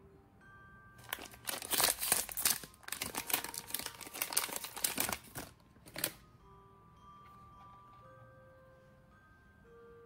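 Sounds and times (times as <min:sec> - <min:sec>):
plastic pouch crinkling: 0:01.0 - 0:06.2.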